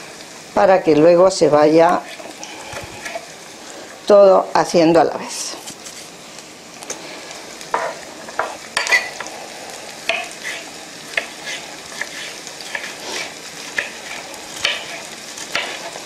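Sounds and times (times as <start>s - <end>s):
onion sizzling in a pan: 0.0s - 16.0s
knife slicing pepper: 10.1s - 16.0s.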